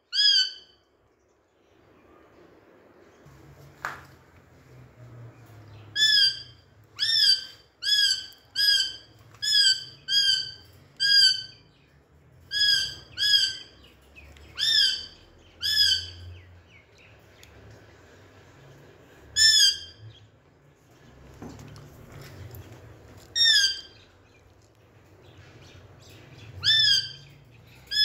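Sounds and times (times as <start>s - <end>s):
parakeet screeching: 0.1s - 0.8s, 5.9s - 11.6s, 12.5s - 13.8s, 14.6s - 16.2s, 19.4s - 20.0s, 23.3s - 24.1s, 26.6s - 27.3s.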